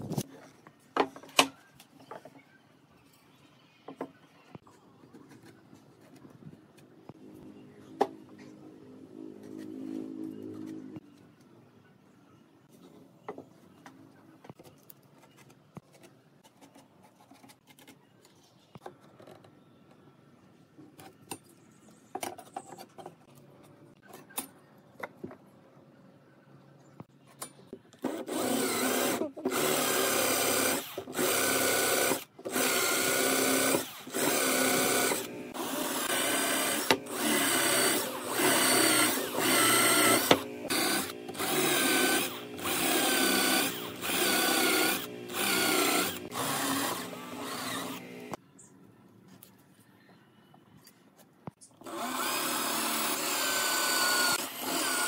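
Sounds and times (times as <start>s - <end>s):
cordless drill boring into wood: 28.0s - 48.4s, 51.8s - 55.0s.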